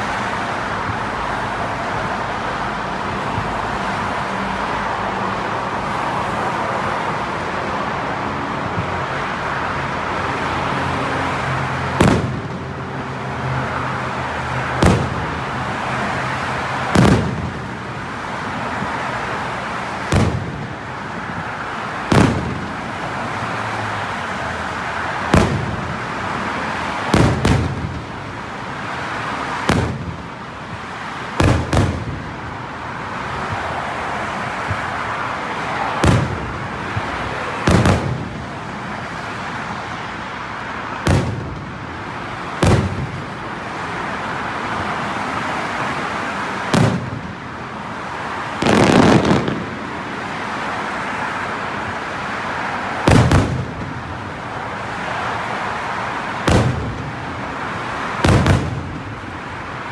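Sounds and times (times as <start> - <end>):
steady background noise: 0.0 - 59.9
firework shells booming: 12.0 - 12.6, 14.8 - 15.4, 16.8 - 17.7, 20.0 - 20.8, 22.0 - 22.9, 25.2 - 26.1, 27.1 - 28.1, 29.6 - 30.3, 31.3 - 32.4, 36.0 - 38.4, 41.0 - 41.7, 42.6 - 43.4, 46.7 - 47.4, 48.6 - 49.9, 53.1 - 54.0, 56.4 - 57.2, 58.2 - 59.0.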